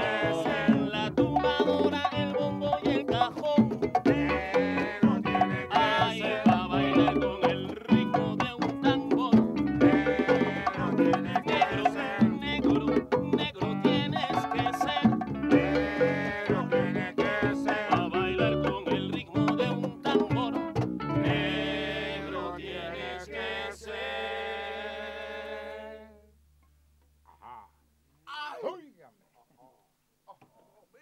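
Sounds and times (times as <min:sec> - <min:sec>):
cajon strikes: 0:00.0 - 0:16.2, 0:16.8 - 0:21.6
strummed guitar: 0:00.0 - 0:22.6.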